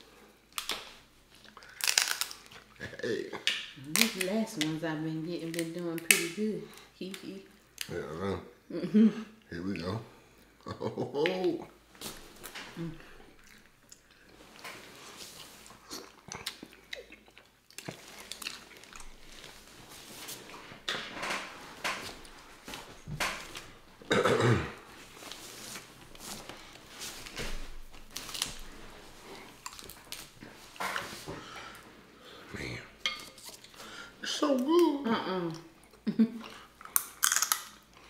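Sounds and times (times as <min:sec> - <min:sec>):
crab shells cracking: 0:01.5 - 0:02.7, 0:36.8 - 0:37.9
chewing and slurping: 0:13.2 - 0:19.8.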